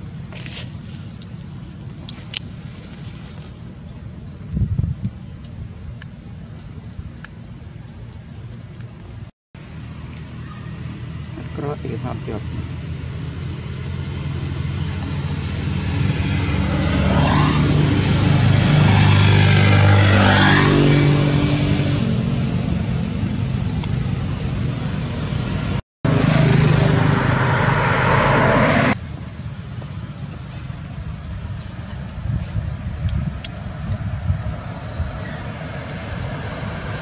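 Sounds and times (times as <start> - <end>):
traffic noise: 0.0 - 37.0
vehicle engine revving: 10.9 - 29.0.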